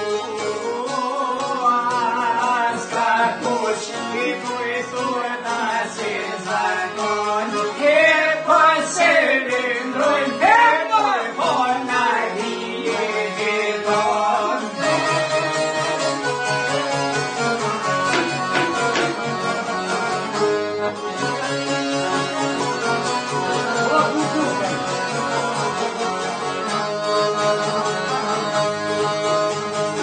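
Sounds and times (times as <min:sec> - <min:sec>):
man singing: 0:00.0 - 0:15.9, 0:23.5 - 0:25.8
accordion: 0:00.0 - 0:30.0
lutes playing folk music: 0:00.0 - 0:30.0.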